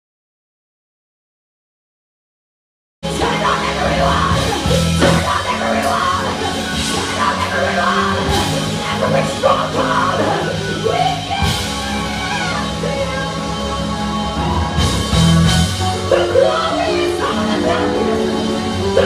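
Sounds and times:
gospel band playing: 3.0s - 19.0s
woman singing: 3.1s - 13.3s, 16.0s - 19.0s.

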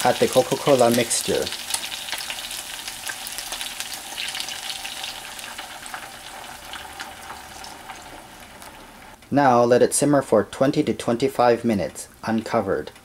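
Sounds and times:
wings sizzling in hot oil: 0.0s - 9.2s.

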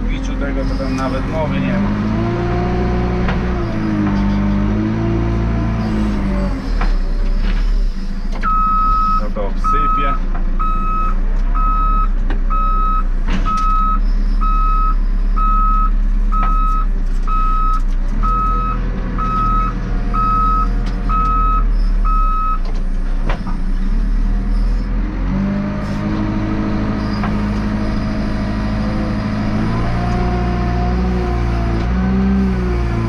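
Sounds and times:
diesel engine running: 0.0s - 33.0s
reversing alarm beeping: 8.4s - 22.6s.

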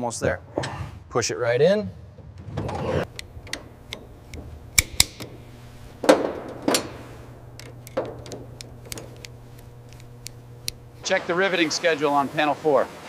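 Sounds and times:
steady low hum: 3.0s - 12.6s
metal pipe fitting clicks: 3.1s - 10.8s.

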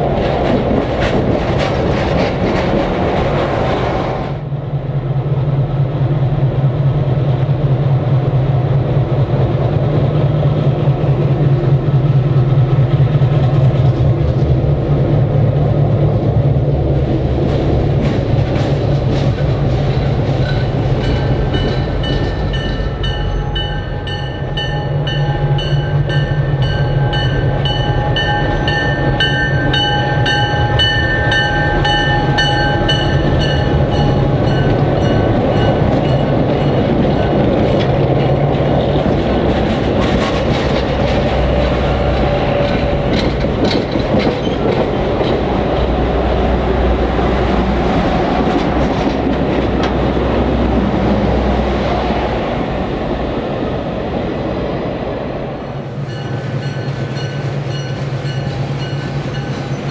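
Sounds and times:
wheels clicking over rail joints: 0.0s - 3.8s, 16.9s - 50.7s
diesel locomotive engine hum: 0.0s - 59.9s
passenger cars rumbling: 0.0s - 59.9s
ringing bell beat: 20.4s - 36.8s.

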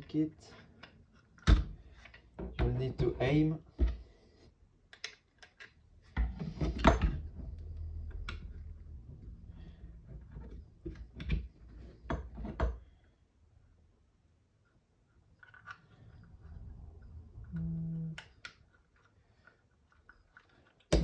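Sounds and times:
plastic parts clicking and knocking: 0.0s - 4.1s, 4.8s - 8.8s, 10.0s - 13.0s, 15.2s - 16.3s, 17.4s - 21.0s.

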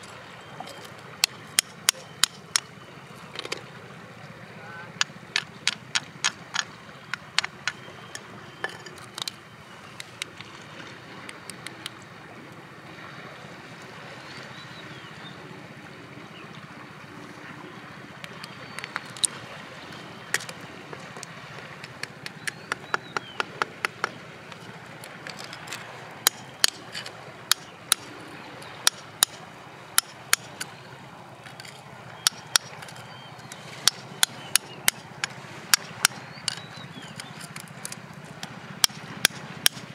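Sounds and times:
hammer tapping chisel into rock: 1.6s - 2.7s, 5.0s - 9.4s, 21.2s - 24.6s, 25.2s - 28.1s, 30.0s - 30.7s, 31.5s - 33.0s, 33.8s - 39.9s.

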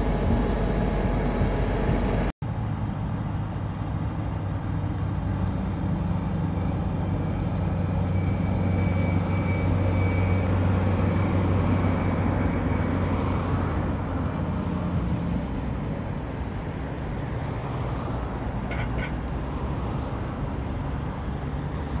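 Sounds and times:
harvester diesel engines droning: 0.0s - 22.0s.

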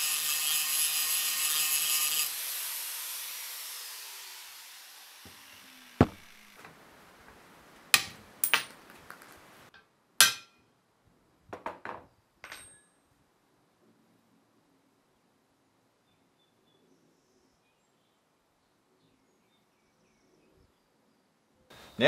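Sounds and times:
angle grinder winding down: 0.0s - 6.6s
metal knocks and clinks: 8.0s - 8.8s, 12.4s - 13.0s.

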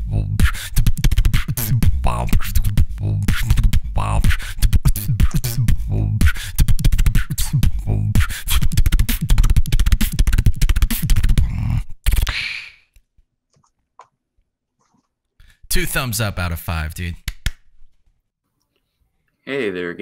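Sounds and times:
vocal beatboxing: 0.0s - 12.6s.

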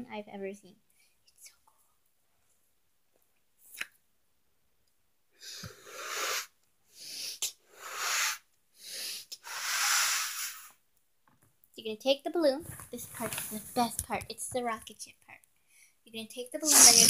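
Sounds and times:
breathy puffs into balloon: 5.4s - 10.8s, 16.6s - 17.0s.

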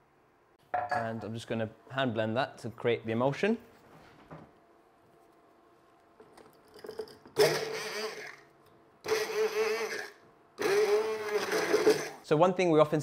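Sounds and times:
stick blender whirring: 7.4s - 12.2s.

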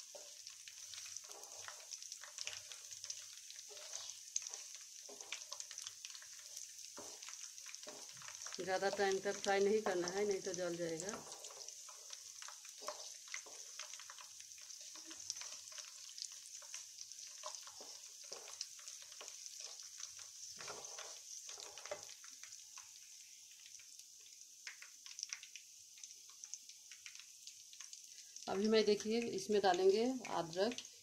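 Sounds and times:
chillies sizzling in hot oil: 0.0s - 31.0s
wooden spatula scraping: 0.1s - 9.0s, 11.2s - 14.0s, 16.6s - 19.8s, 20.5s - 22.1s.

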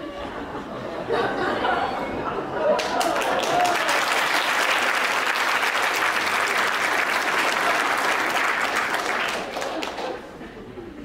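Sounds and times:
audience applauding: 2.8s - 10.4s.

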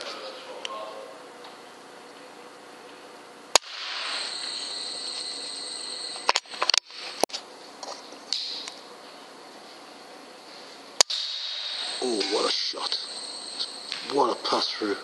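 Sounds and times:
air rifle firing: 3.5s - 4.4s, 11.0s - 12.1s
steady hiss: 3.6s - 7.3s, 10.4s - 15.0s.

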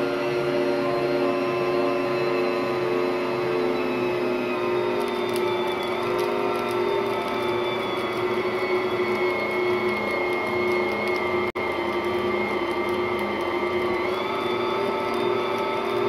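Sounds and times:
stand mixer running: 0.0s - 16.0s
dough clicks and knocks: 5.0s - 16.0s.

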